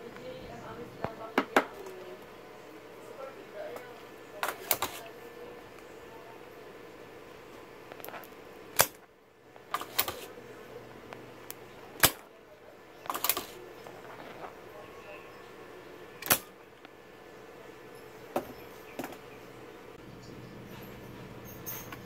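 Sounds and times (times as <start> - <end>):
desoldering pump snapping: 3.7 - 5.9, 7.3 - 12.3, 13.0 - 14.6, 16.2 - 17.0.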